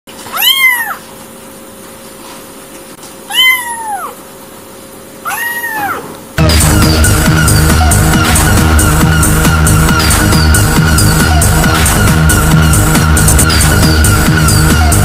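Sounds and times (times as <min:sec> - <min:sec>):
kitten meowing: 0:00.3 - 0:01.0, 0:03.3 - 0:04.2, 0:05.2 - 0:06.1.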